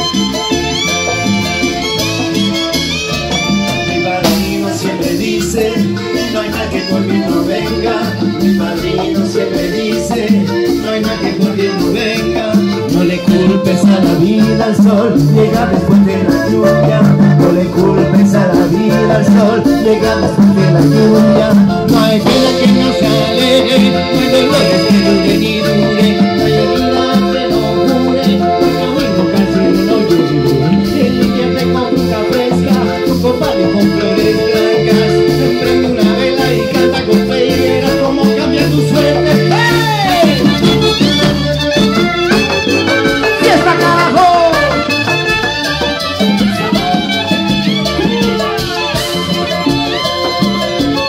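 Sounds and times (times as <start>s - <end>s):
congas: 0.0s - 51.0s
drum kit: 0.0s - 51.0s
electric guitar: 0.0s - 51.0s
salsa band playing: 0.0s - 51.0s
walking bass line: 0.0s - 51.0s.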